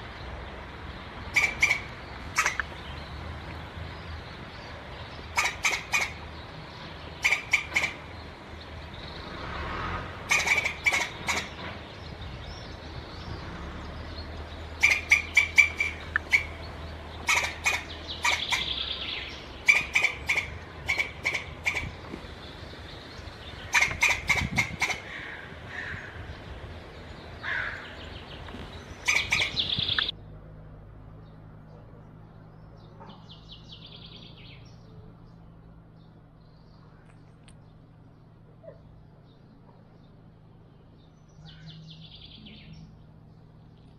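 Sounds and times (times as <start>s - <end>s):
squirrels chucking alarm calls: 1.1s - 3.1s, 4.8s - 9.1s, 10.2s - 12.9s, 14.4s - 30.1s.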